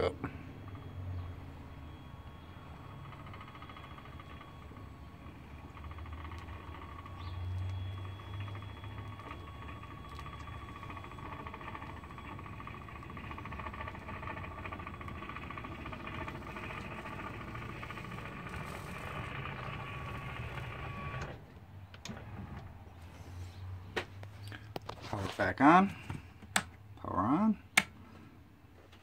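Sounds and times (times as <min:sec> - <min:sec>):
awning motor whining: 0:00.0 - 0:23.8.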